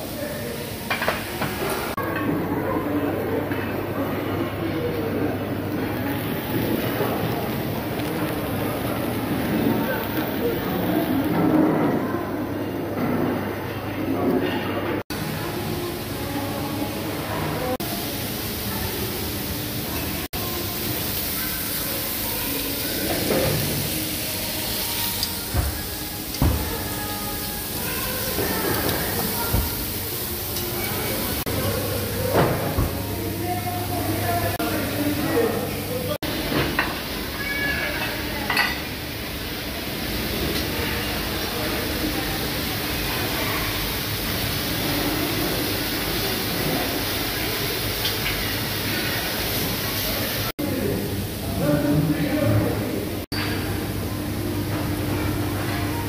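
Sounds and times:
meat sizzling on griddle: 0:06.0 - 0:11.5, 0:16.9 - 0:32.8, 0:36.3 - 0:50.5.

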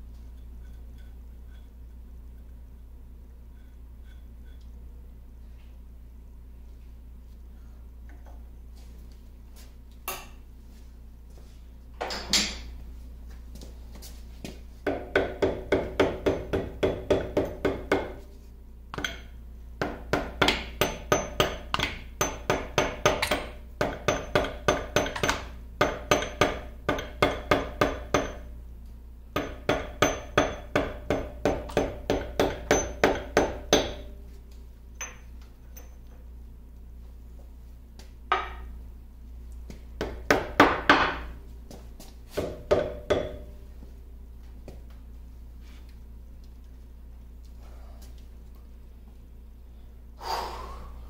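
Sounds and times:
mallet striking metal with ring: 0:29.4 - 0:34.1.

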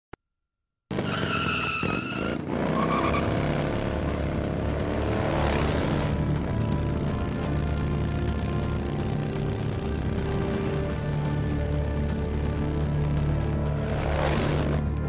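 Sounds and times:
tyre squeal: 0:01.0 - 0:03.3
motorcycle engine revving: 0:02.1 - 0:15.0.

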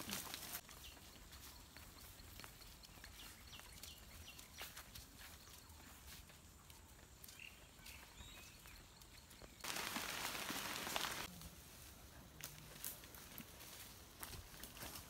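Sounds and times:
rustling crunching through dry leaves: 0:00.0 - 0:06.4, 0:09.6 - 0:15.0
footsteps on dirt path: 0:00.0 - 0:11.3, 0:12.3 - 0:15.0.

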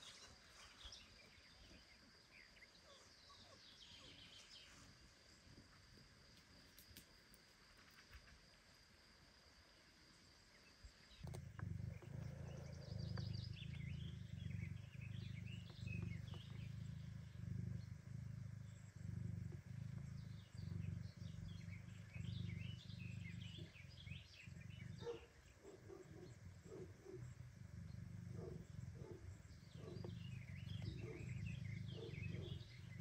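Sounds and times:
cat purring: 0:11.2 - 0:33.0.

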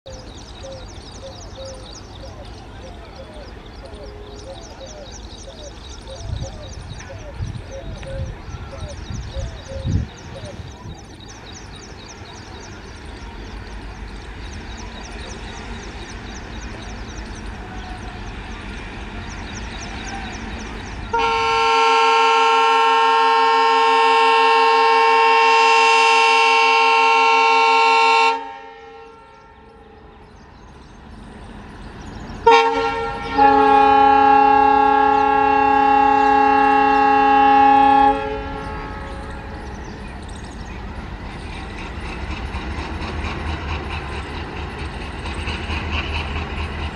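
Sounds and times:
diesel locomotive engine chugging: 0:00.1 - 0:46.9
locomotive horn blasts: 0:21.1 - 0:29.8, 0:32.4 - 0:39.3.

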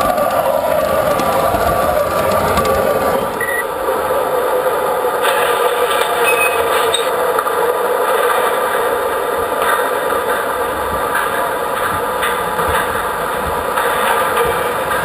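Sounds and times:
model train rolling rumble: 0:00.0 - 0:15.0
high squeaks: 0:06.1 - 0:07.1.

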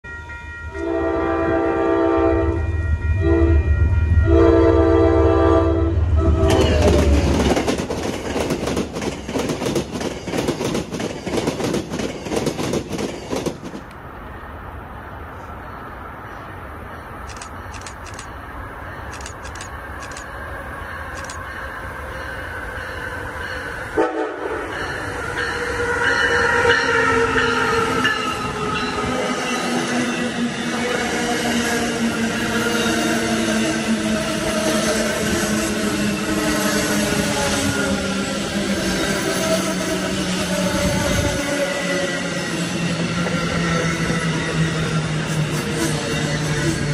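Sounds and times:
train horn blasts: 0:00.1 - 0:07.0, 0:23.8 - 0:28.9
train rumbling past: 0:00.1 - 0:46.9.

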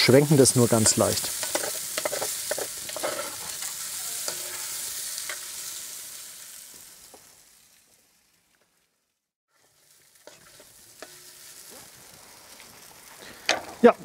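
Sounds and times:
noodles sizzling in oil: 0:00.0 - 0:14.0
stirring clicks and scrapes: 0:00.8 - 0:05.4, 0:09.6 - 0:11.3.

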